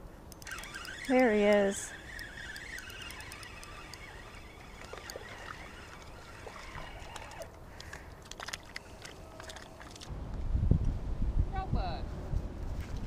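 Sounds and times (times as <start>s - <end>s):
faint clicks: 0.3s - 10.1s
fishing reel being cranked: 0.4s - 7.6s
light water splashing: 0.4s - 10.1s.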